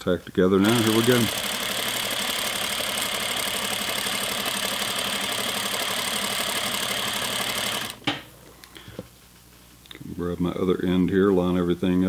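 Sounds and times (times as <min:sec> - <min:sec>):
sewing machine running: 0:00.6 - 0:08.0.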